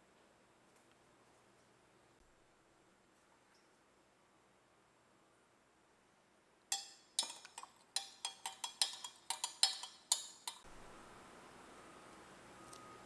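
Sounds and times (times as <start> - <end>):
spoon clinking against glass: 6.7 - 10.6.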